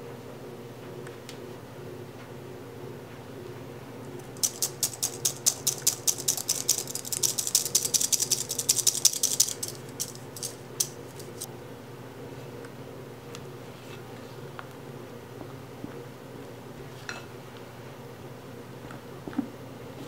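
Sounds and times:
mesh sieve ticking: 4.2s - 11.5s.

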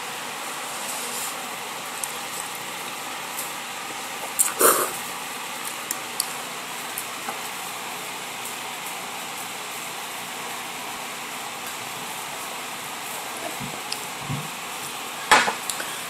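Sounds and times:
background hiss: 3.2s - 5.8s
noodle slurp: 4.4s - 5.0s.

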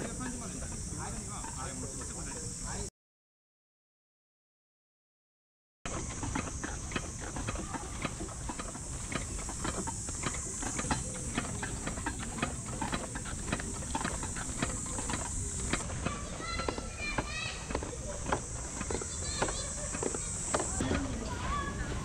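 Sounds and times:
carried cooler clicking: 0.0s - 2.8s, 5.9s - 21.7s
footsteps on dirt path: 5.9s - 22.0s.

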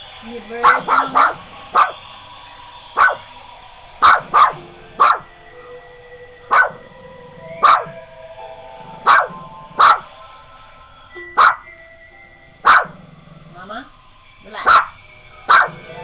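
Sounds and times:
dog barking: 0.6s - 2.0s, 3.0s - 3.2s, 4.0s - 5.3s, 6.5s - 6.8s, 7.6s - 8.0s, 9.0s - 10.1s, 11.4s - 11.6s, 12.6s - 13.1s, 14.5s - 15.9s.

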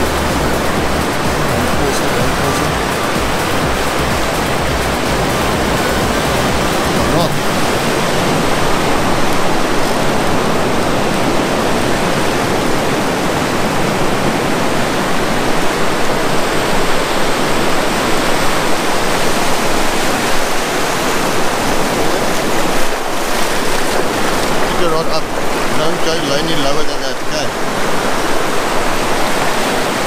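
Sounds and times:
surf washing over rocks: 0.0s - 30.0s.

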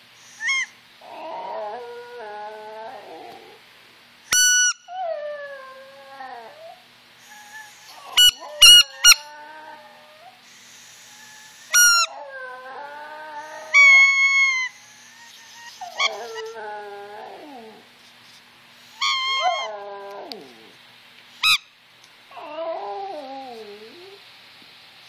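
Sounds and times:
dog howling: 0.4s - 3.6s, 4.9s - 10.4s, 11.0s - 17.9s, 19.0s - 20.8s, 22.3s - 24.2s
squeaky toy squeaks: 4.3s - 4.8s, 8.2s - 9.2s, 11.8s - 12.1s.

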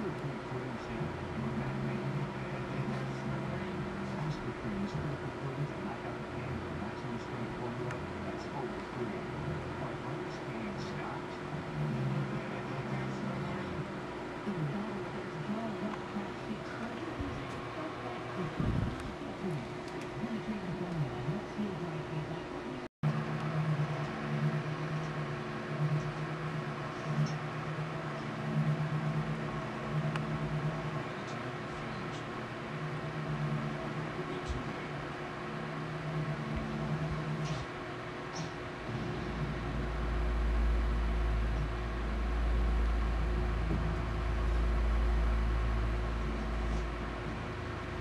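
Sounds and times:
low mechanical hum: 0.0s - 48.0s
low rumble: 38.8s - 48.0s.

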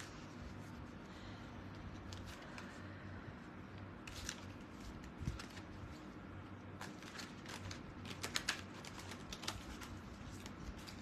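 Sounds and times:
low room hum: 0.0s - 11.0s
cards shuffling: 6.7s - 11.0s.

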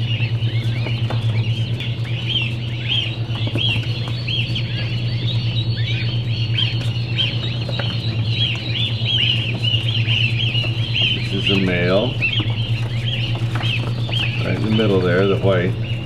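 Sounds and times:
hatchlings peeping: 0.0s - 16.0s
steady low hum: 0.0s - 16.0s.

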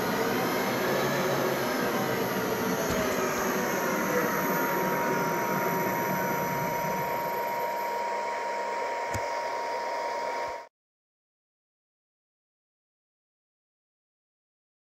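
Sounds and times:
lathe motor winding down: 0.0s - 10.7s
steady high tone: 0.0s - 10.7s.

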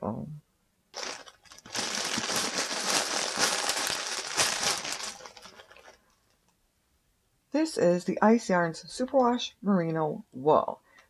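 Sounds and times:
plastic packaging crinkling: 0.9s - 6.4s.

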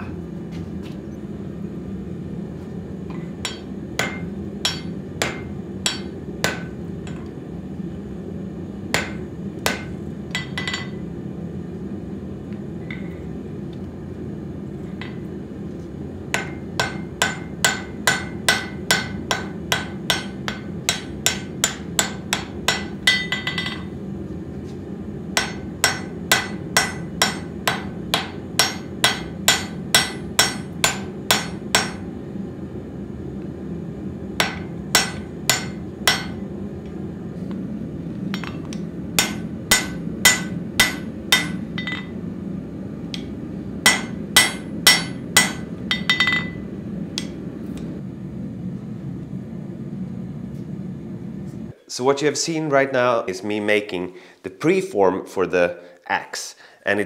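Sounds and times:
hammer striking steel on anvil: 3.4s - 7.3s, 8.9s - 11.0s, 16.3s - 23.9s, 25.4s - 32.1s, 34.4s - 36.4s, 38.3s - 42.2s, 43.1s - 46.6s, 47.2s - 47.4s.

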